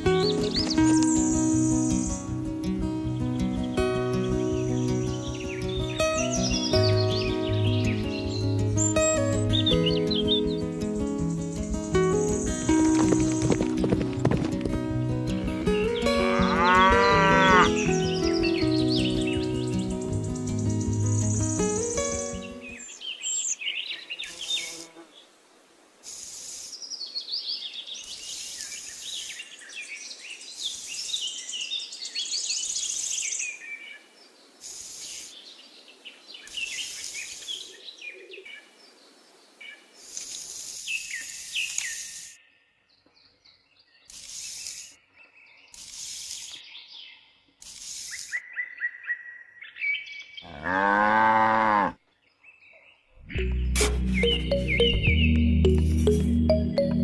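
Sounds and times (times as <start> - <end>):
birds chirping: 0.0 - 24.8, 48.2 - 57.0
cow mooing: 16.2 - 17.9, 50.4 - 52.0.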